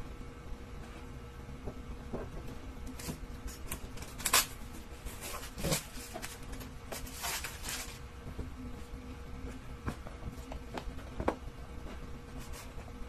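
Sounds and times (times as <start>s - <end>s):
blade scratching plastic wrap: 2.9s - 8.0s
plastic rustling: 2.9s - 8.1s.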